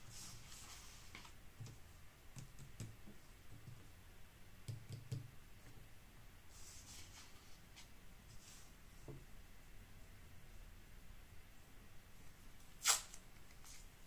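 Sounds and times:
paper sliding rustle: 0.0 - 1.4, 6.5 - 8.7.

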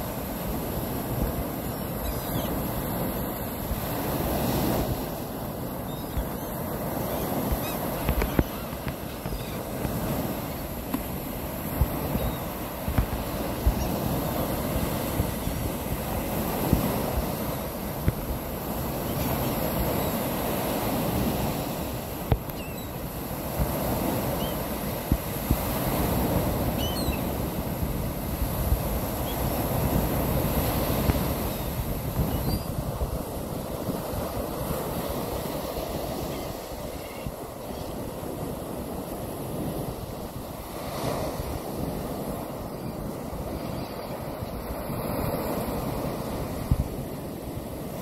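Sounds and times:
wind buffeting microphone: 7.3 - 20.0, 23.4 - 48.0.

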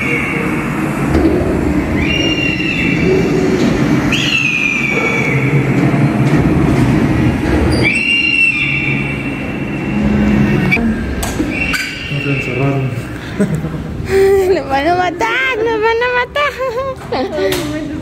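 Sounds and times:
wheels squealing: 0.0 - 13.1
ride car rumbling on track: 0.0 - 13.2.

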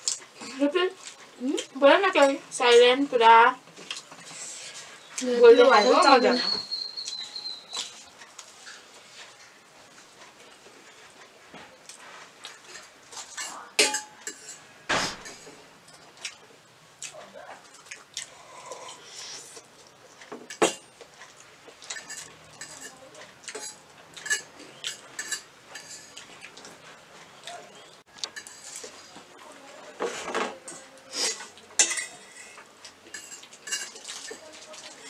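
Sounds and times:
forks clinking on metal plates: 12.7 - 16.0, 20.4 - 20.9, 21.8 - 26.2, 28.3 - 28.9, 30.3 - 35.0.

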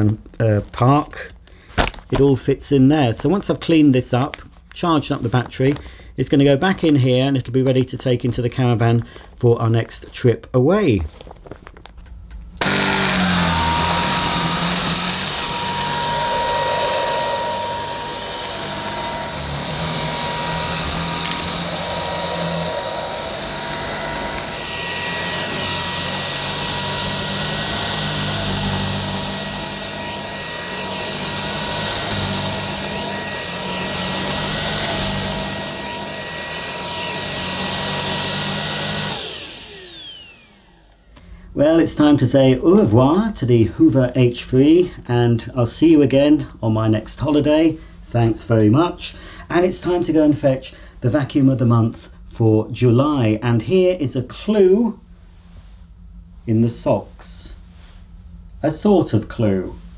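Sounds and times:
vacuum cleaner on carpet: 12.6 - 41.2.

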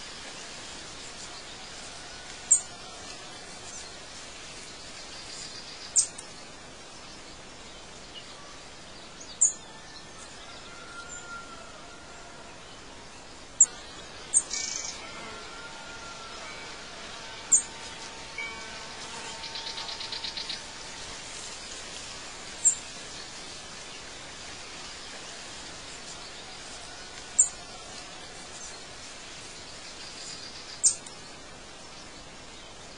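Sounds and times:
steady outdoor hiss: 0.0 - 32.9
bird trill: 13.6 - 15.1, 15.7 - 20.9.

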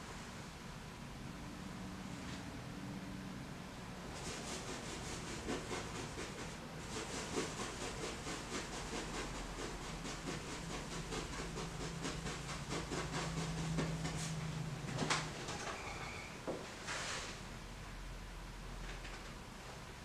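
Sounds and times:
paintbrush scrubbing on canvas: 4.1 - 14.4.

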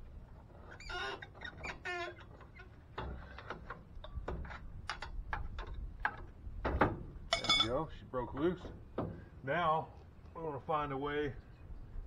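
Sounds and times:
metal clicks and knocks: 2.4 - 7.7.

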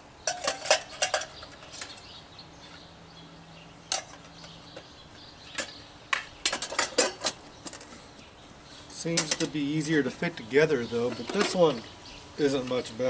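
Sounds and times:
metal cookware clinking and rattling: 0.3 - 2.0, 6.4 - 7.9.

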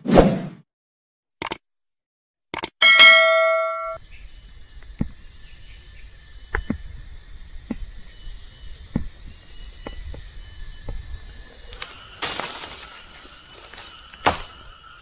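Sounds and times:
notification chime: 2.8 - 4.0.

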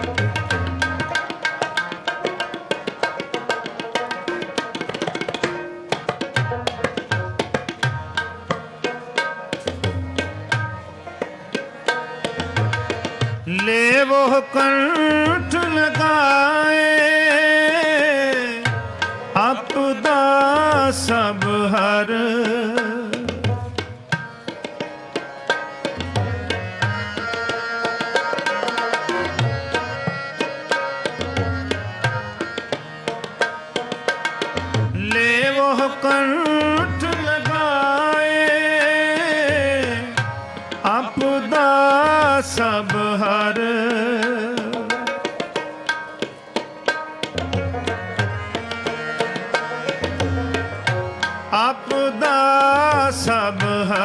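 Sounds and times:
harmonium notes: 0.0 - 54.0
tabla playing: 0.0 - 54.0
man singing: 13.2 - 23.7, 34.9 - 45.6, 51.4 - 54.0.

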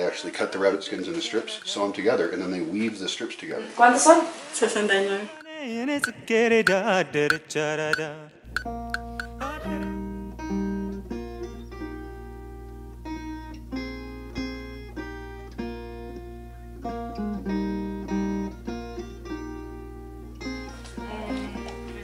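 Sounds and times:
acoustic guitar picking: 5.4 - 22.0.

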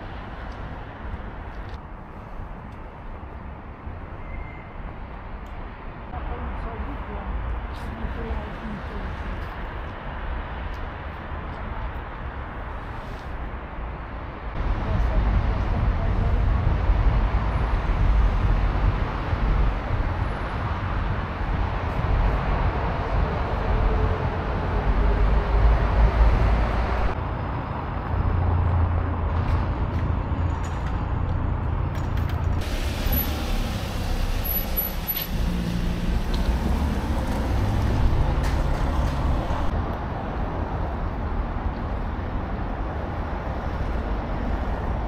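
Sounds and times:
traffic rumble and hiss: 0.0 - 45.0.

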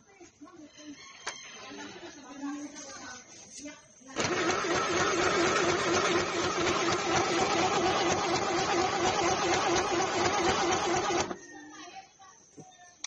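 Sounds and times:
sewing machine running: 4.2 - 11.4.

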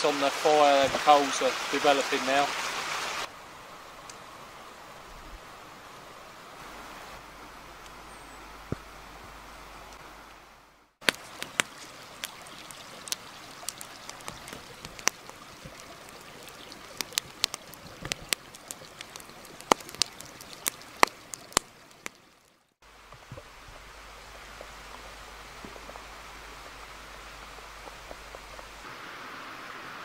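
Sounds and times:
light rain hiss: 0.0 - 30.0
campfire crackling and popping: 11.0 - 28.9.

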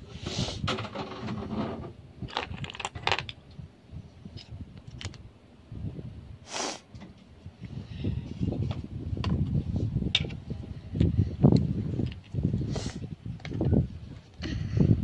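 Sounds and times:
plastic pieces clicking and rattling: 2.3 - 3.4, 4.8 - 5.2.

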